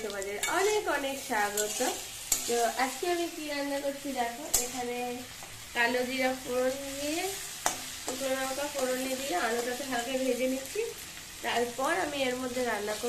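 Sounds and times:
potatoes sizzling in oil: 0.0 - 13.0
spatula scraping a pan: 0.4 - 3.2, 4.3 - 5.5.

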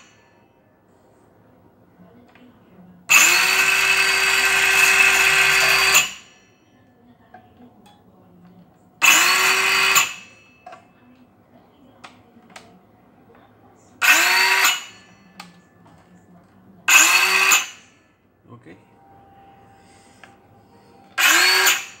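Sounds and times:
circular saw spinning: 3.1 - 6.3, 9.0 - 10.3, 14.0 - 15.0, 16.9 - 17.9, 21.2 - 22.0.

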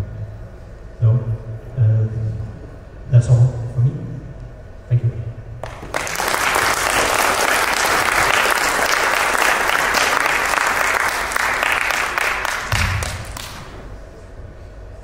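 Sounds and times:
audience applauding: 5.6 - 13.8.

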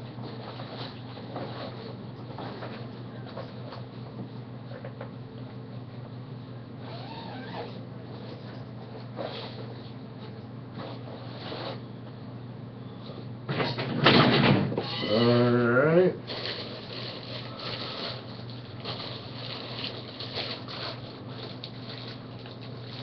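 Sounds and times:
steady low hum: 0.0 - 23.0
man humming: 15.0 - 16.2
plastic packaging crinkling: 16.2 - 23.0.

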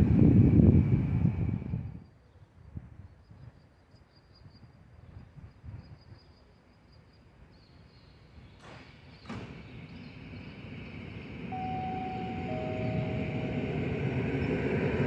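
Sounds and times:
electric train rumble: 0.0 - 2.1, 7.4 - 15.0
steady whistling tones: 9.2 - 15.0.

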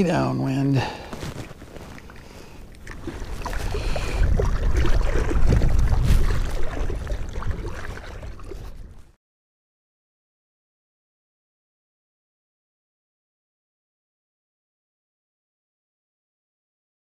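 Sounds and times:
water lapping against boat hull: 0.8 - 9.2
wind rumbling on microphone: 1.4 - 9.2.

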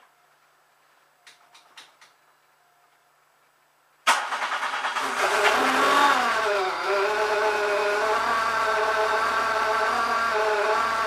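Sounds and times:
car engine starting and idling: 4.0 - 11.0.

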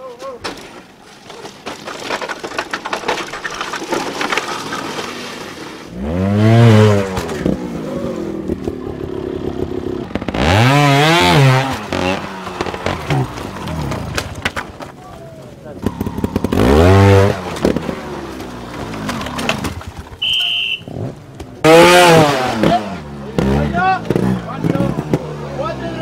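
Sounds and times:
crackling and clicking: 1.0 - 5.2
motorcycle engine revving: 5.0 - 14.4, 15.7 - 26.0.

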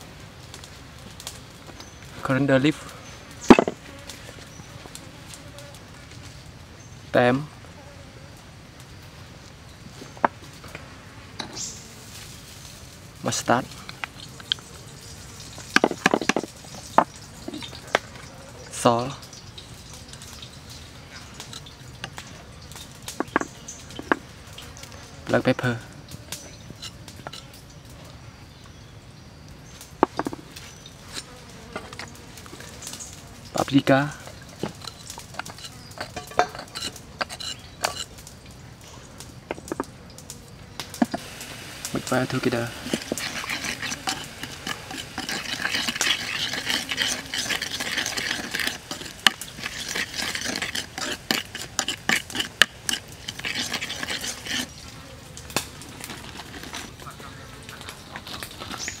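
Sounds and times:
wooden utensils clicking on bowl: 34.5 - 38.1, 42.1 - 54.7.

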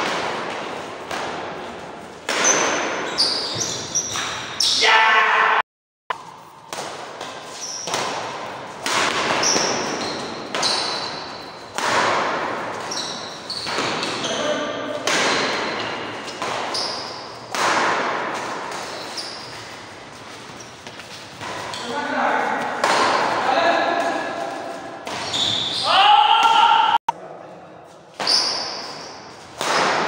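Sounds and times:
racket hitting shuttlecock: 0.0 - 4.5, 6.1 - 19.6, 20.8 - 25.6, 28.2 - 30.0
shoes squeaking on court floor: 1.6 - 4.8, 6.2 - 11.8, 12.6 - 17.5, 18.5 - 26.0, 28.0 - 29.6.

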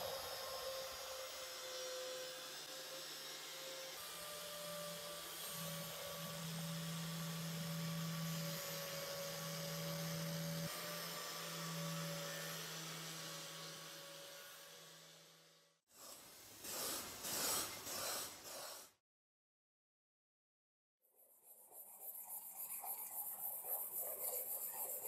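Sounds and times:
small electric motor humming: 0.0 - 15.7
hiss: 15.9 - 19.0.

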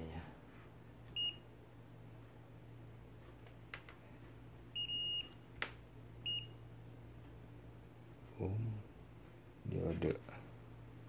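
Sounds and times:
steady low hum: 0.0 - 11.0
multimeter beeping: 1.1 - 1.5, 4.7 - 5.4, 6.2 - 6.6.

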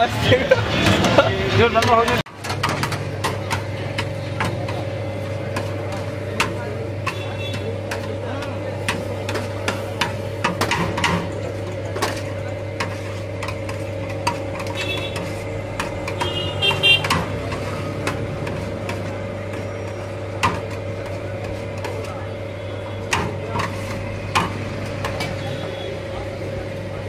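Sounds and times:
kitchen equipment humming: 0.0 - 27.0.

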